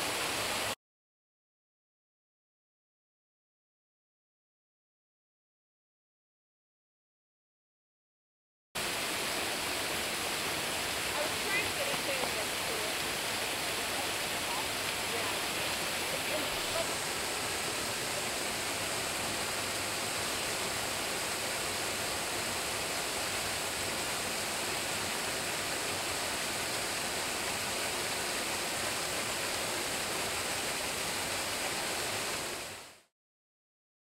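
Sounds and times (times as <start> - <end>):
waterfall rushing: 0.0 - 0.8, 8.8 - 33.1.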